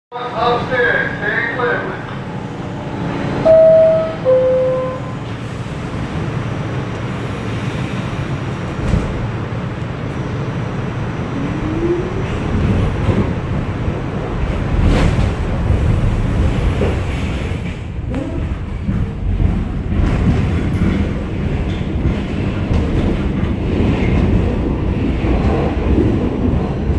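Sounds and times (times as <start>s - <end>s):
subway car rumbling: 0.1s - 26.9s
two-tone door chime: 3.5s - 5.2s.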